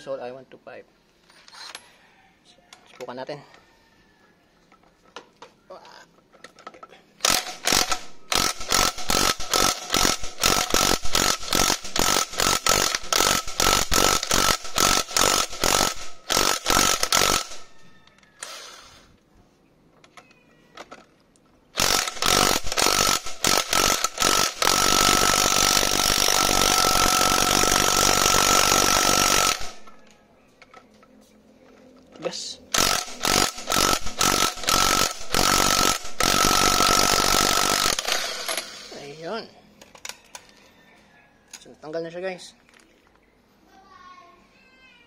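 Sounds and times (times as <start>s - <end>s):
impact wrench hammering: 21.8s - 29.8s, 32.8s - 39.0s.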